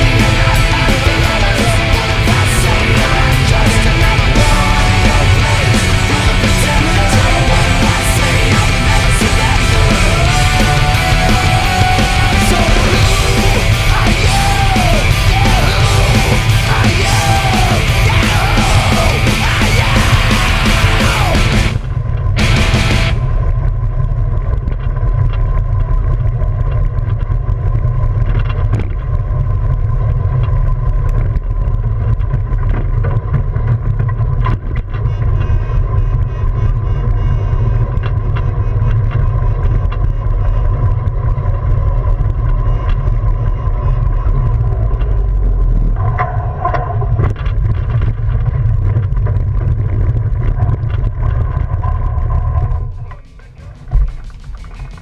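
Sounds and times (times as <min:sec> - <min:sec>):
faint steady whine: 0:00.0 - 0:55.0
wheels rumbling on asphalt: 0:00.0 - 0:55.0
cart rattling: 0:30.1 - 0:55.0.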